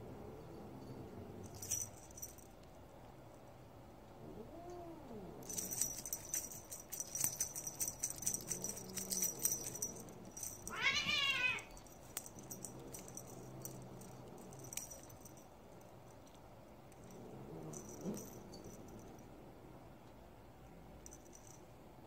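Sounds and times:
jingling rattle: 0.8 - 2.7, 5.4 - 19.2, 21.0 - 21.6
kitten meowing: 10.7 - 11.7.

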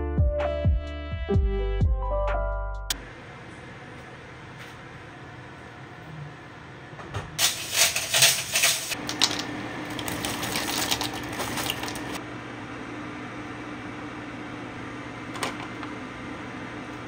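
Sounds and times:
dry pasta clattering into pot: 7.4 - 12.2
plastic bag rustling: 7.4 - 12.2.

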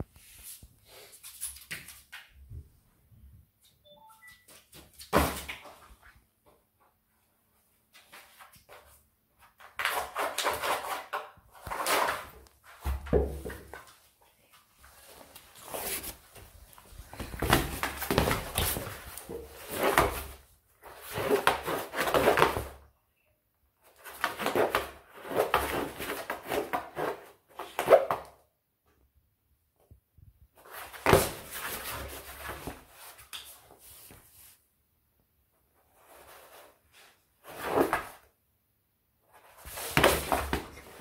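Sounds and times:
cardboard scraping on floor: 8.0 - 14.0, 14.8 - 22.8, 23.9 - 28.2, 30.6 - 34.6, 35.8 - 38.3, 39.3 - 41.0.

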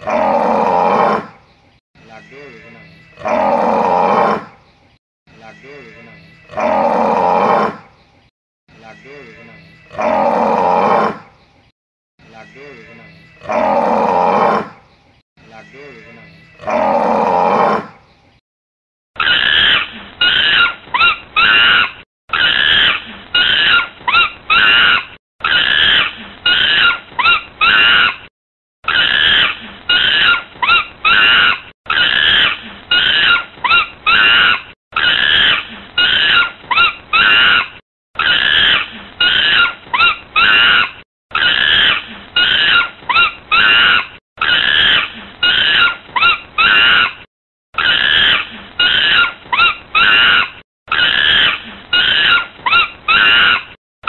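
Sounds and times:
high-pitched animal calls: 19.2 - 53.8.

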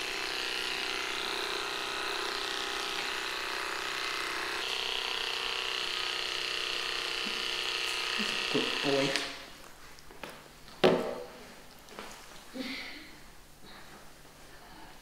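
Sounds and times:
electric clippers buzzing: 0.0 - 9.6.

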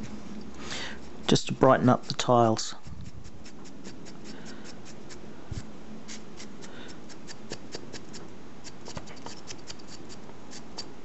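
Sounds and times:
brush bristles scratching: 0.9 - 10.9.

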